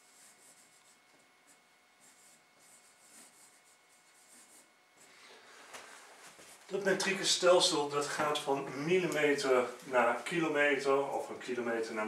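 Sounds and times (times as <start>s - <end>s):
marker scratching on whiteboard: 0.0s - 5.1s.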